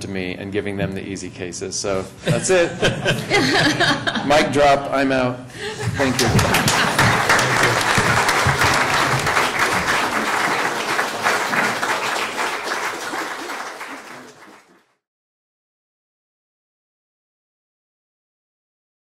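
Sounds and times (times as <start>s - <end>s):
audience applauding: 5.6s - 14.9s.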